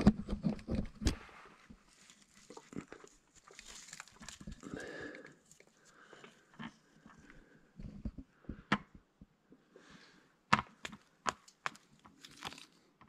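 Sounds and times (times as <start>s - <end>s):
small clicks and rustles: 0.0s - 8.2s.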